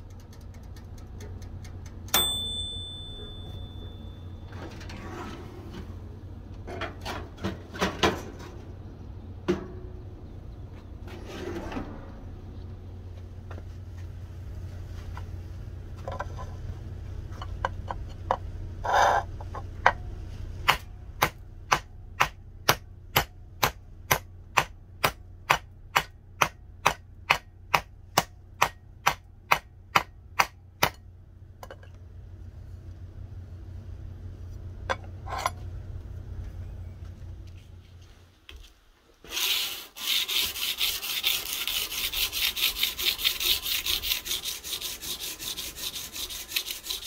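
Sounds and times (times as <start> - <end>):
steady low hum: 0.0 - 39.2
hammer striking steel blade: 2.2 - 4.2, 20.7 - 31.0.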